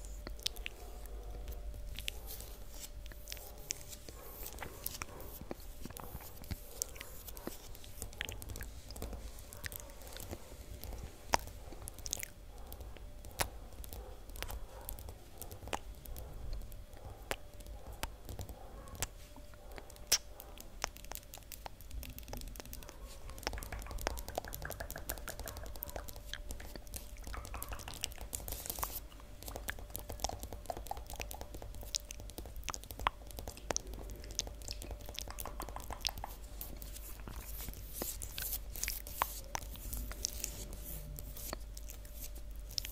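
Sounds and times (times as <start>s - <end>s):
wet mouth sounds: 0.0s - 13.5s, 14.3s - 42.9s.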